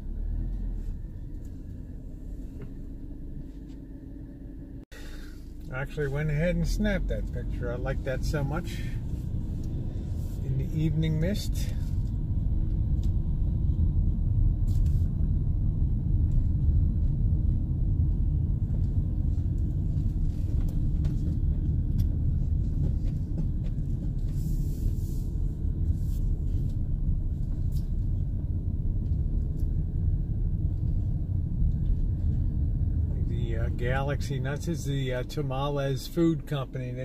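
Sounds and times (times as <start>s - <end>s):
van engine and road rumble: 0.0s - 37.0s.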